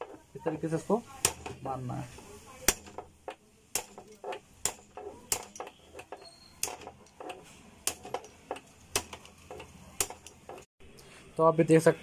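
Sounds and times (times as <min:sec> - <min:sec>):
steel rod knocking on metal: 0:02.7 - 0:10.7.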